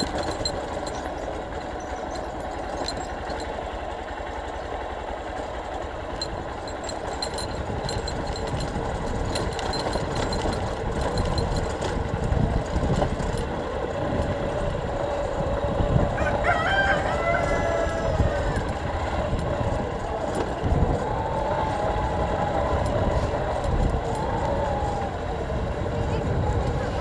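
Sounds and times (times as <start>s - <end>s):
light rattling: 0.0s - 4.8s, 5.4s - 15.7s
vehicle engine on rough dirt road: 0.0s - 27.0s
rooster crowing: 16.1s - 19.2s.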